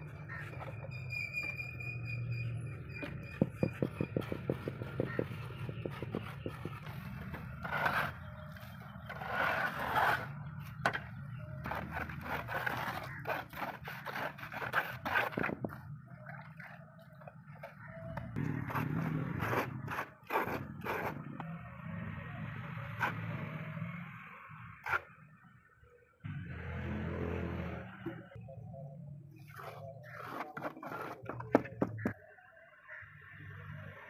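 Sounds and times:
trowel scraping gritty cement: 3.1 - 11.0, 11.6 - 17.3, 18.4 - 21.5, 29.4 - 32.1.

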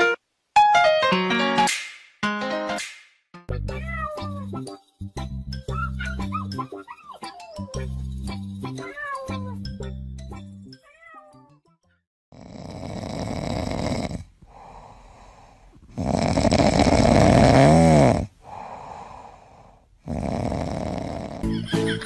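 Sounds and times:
kitten snoring: 12.3 - 21.4
soft breaths: 13.6 - 21.3.

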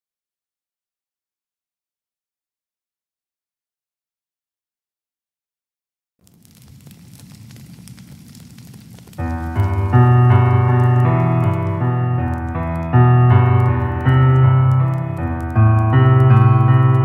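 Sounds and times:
faint crackling noise: 6.2 - 17.0
keyboard chords: 9.2 - 17.0.

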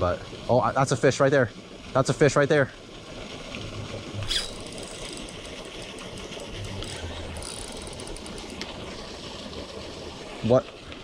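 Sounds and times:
fishing reel ticking: 4.3 - 8.7.

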